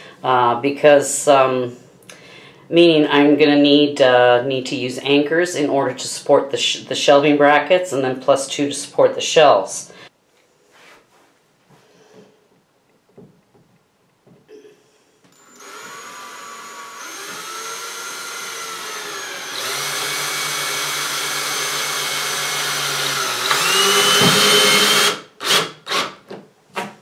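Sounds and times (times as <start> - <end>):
cordless drill whining: 15.3 - 26.2
drill trigger bursts: 15.4 - 26.2.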